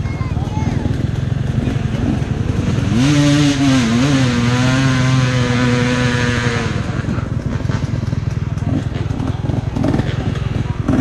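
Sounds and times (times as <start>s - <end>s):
dirt bike engine revving: 0.0s - 11.0s.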